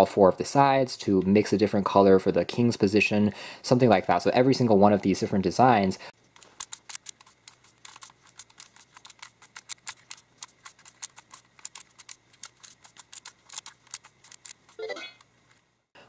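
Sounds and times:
puzzle cube clicking: 6.3 - 15.4.

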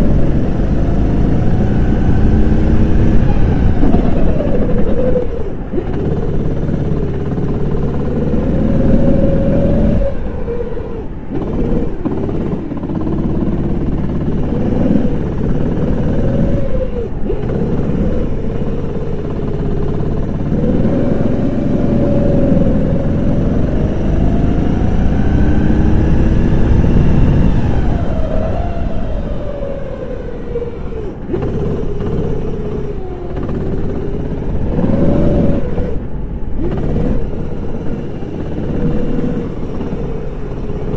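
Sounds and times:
go-kart engine revving: 0.0 - 40.9.

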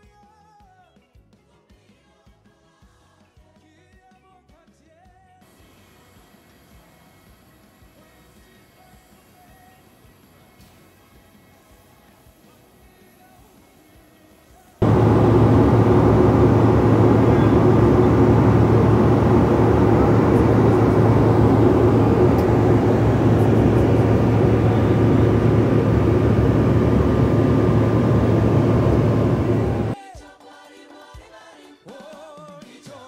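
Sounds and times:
airliner cabin engine noise: 14.8 - 30.0.

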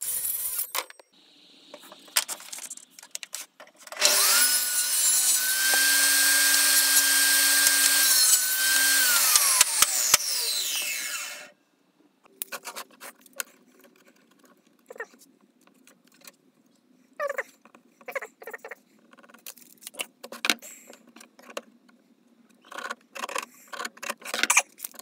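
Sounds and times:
table saw whine: 4.0 - 11.6.

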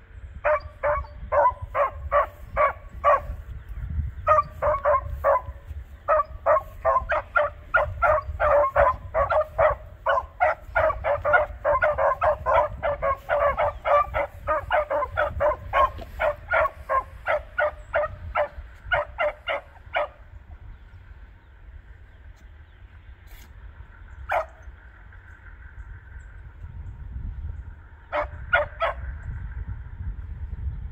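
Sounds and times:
dogs barking: 0.4 - 20.4, 24.2 - 24.7, 28.1 - 29.1.

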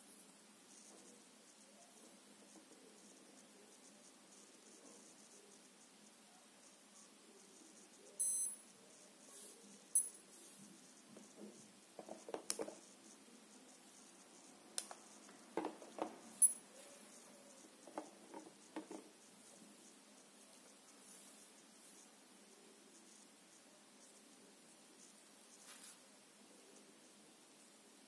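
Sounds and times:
high-pitched beep: 8.2 - 8.6.

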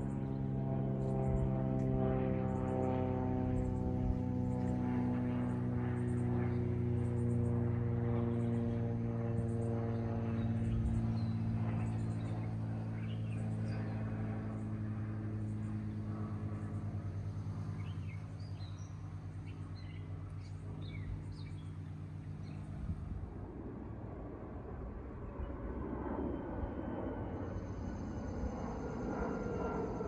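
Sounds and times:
aircraft engine drone: 0.0 - 30.0
birds chirping: 5.4 - 22.9.

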